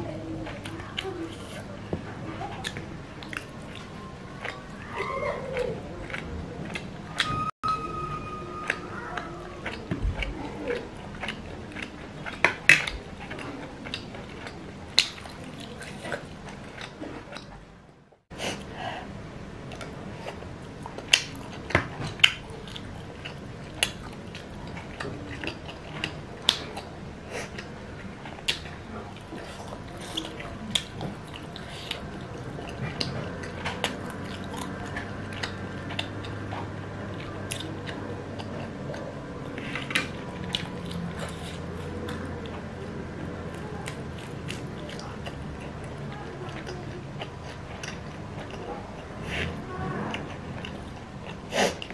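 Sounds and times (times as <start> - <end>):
chewing and biting noodles: 8.6 - 17.5, 19.7 - 51.9.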